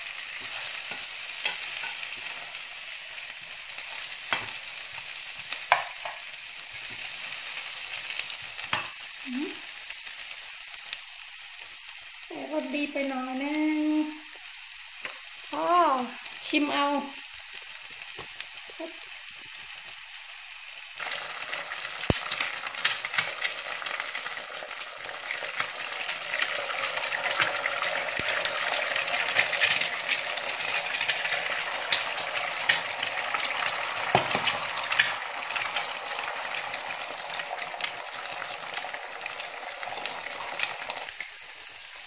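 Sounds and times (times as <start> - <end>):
eggs sizzling in hot oil: 0.0 - 42.0
eggs cracked on pan: 4.2 - 4.6, 5.6 - 6.3, 8.6 - 9.1, 21.0 - 41.3.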